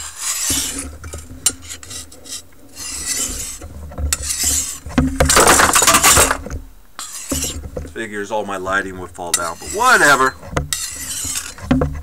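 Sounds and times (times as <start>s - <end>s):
knife scraping on sharpening stone: 0.0s - 0.8s, 1.5s - 4.8s, 7.0s - 7.6s, 9.3s - 11.7s.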